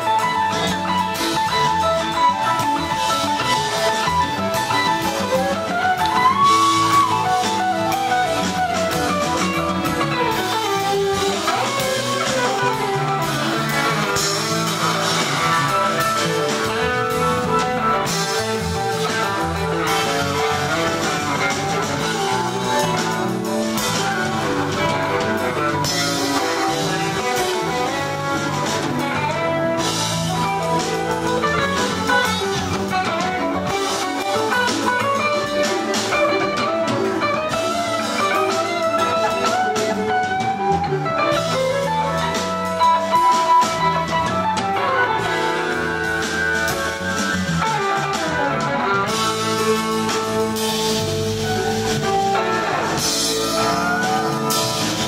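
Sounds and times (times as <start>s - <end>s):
lead guitar bending notes: 0.0s - 55.0s
live rock band playing: 0.0s - 55.0s.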